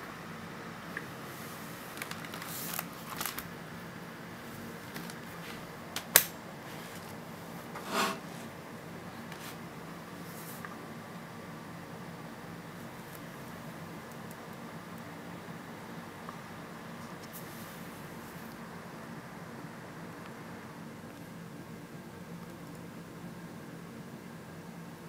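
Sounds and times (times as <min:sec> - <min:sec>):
low room hum: 0:00.0 - 0:25.0
brief rasp: 0:07.8 - 0:08.3.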